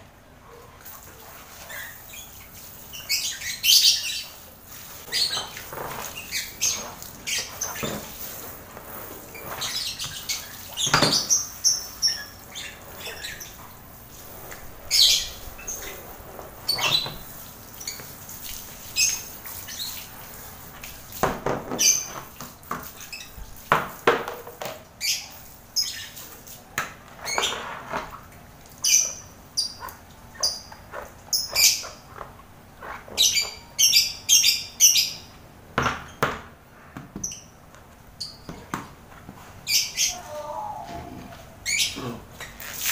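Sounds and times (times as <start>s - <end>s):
birds chirping and squawking: 1.3s - 20.7s, 21.5s - 23.5s, 25.0s - 26.4s, 28.8s - 35.3s, 39.6s - 42.6s
hose spraying on metal tray: 4.6s - 10.9s.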